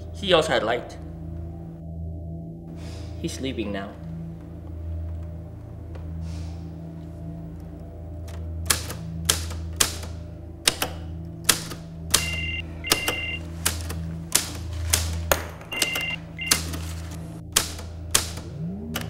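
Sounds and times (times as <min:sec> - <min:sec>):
low steady drone: 0:00.0 - 0:19.0
typewriter keys struck: 0:08.7 - 0:18.4.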